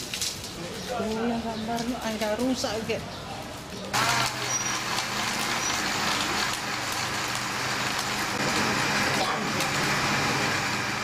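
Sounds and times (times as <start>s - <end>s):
blender motors whirring: 4.0s - 11.0s.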